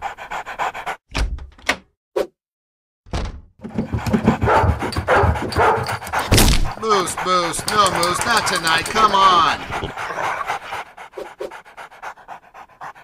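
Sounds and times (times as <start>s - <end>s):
cartoon thuds and knocks: 3.1s - 6.8s
knocking and scuffling: 3.2s - 6.8s.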